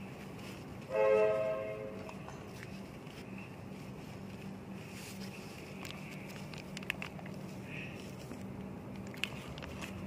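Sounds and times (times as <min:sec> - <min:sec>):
tissue paper crinkling: 0:00.0 - 0:00.9, 0:02.0 - 0:10.0
steady background noise: 0:00.0 - 0:10.0
plastic bag crinkling: 0:02.5 - 0:10.0.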